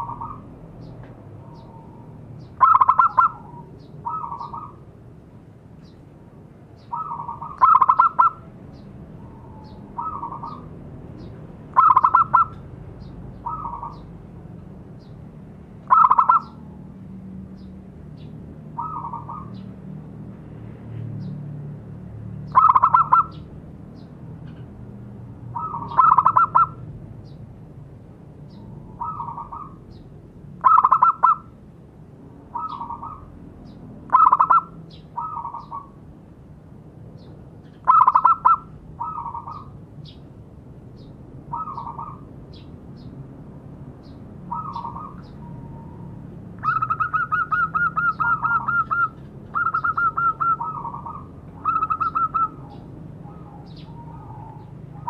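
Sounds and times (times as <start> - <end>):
dove cooing: 1.4 - 4.8, 6.9 - 8.5, 9.2 - 10.7, 11.8 - 12.6, 13.4 - 14.1, 15.9 - 16.8, 18.8 - 19.6, 22.5 - 23.4, 25.5 - 26.8, 28.8 - 29.8, 30.6 - 31.5, 32.5 - 33.3, 34.1 - 36.0, 37.8 - 39.7, 41.5 - 42.3, 44.5 - 55.0.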